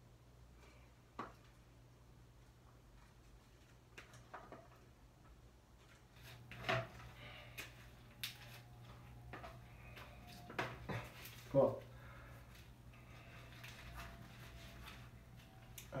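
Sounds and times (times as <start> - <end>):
low steady hum: 0.0 - 16.0
leaves rustling and clicking: 7.3 - 11.7.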